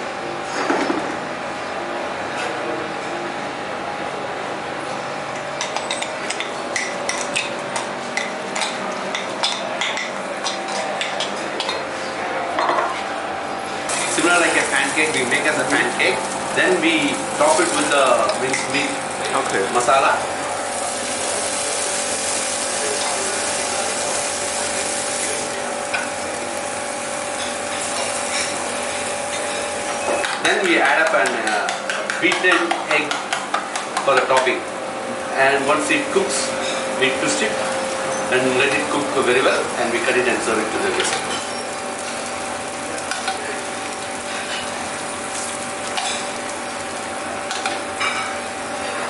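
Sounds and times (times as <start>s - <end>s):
steady background hum: 0.0s - 49.0s
food sizzling in a frying pan: 13.9s - 30.4s, 34.6s - 49.0s.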